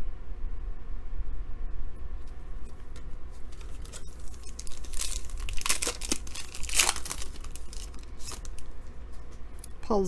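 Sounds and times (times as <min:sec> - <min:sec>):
foil wrapper crinkling and tearing: 0:03.5 - 0:08.7.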